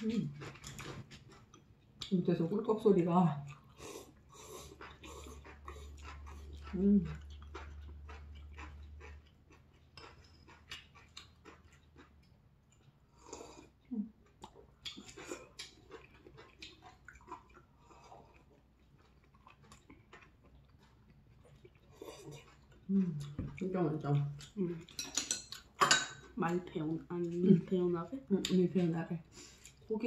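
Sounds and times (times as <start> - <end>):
soft chewing: 0.0 - 30.0
chopsticks clicking on bowls: 24.9 - 26.2.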